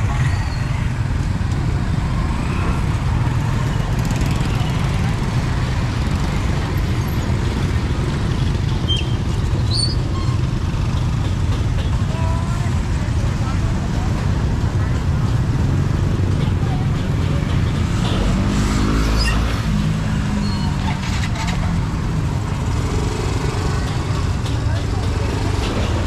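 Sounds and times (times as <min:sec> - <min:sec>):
scooters and tuk-tuks passing: 0:00.0 - 0:26.0.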